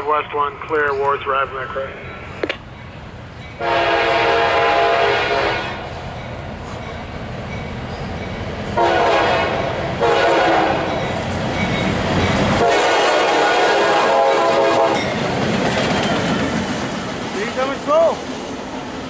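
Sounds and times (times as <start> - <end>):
train rumble: 0.0 - 19.0
locomotive air horn blasts: 3.6 - 5.9, 8.8 - 11.0, 12.6 - 15.0.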